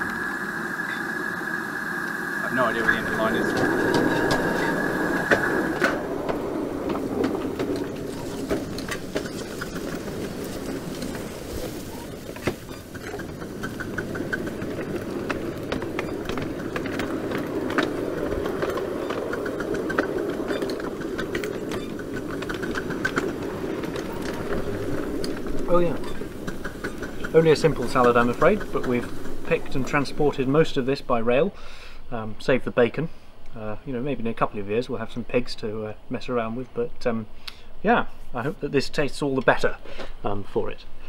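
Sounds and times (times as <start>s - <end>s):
wheels clicking and rattling: 0.0s - 31.4s
model train rumbling on track: 0.0s - 32.8s
evenly spaced ticks: 2.1s - 30.6s.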